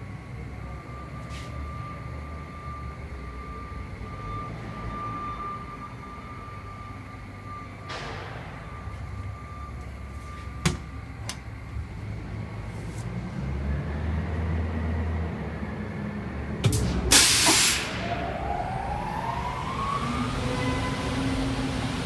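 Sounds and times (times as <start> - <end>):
fan motor whine: 0.0 - 22.0
burst of hissing air: 17.1 - 17.9.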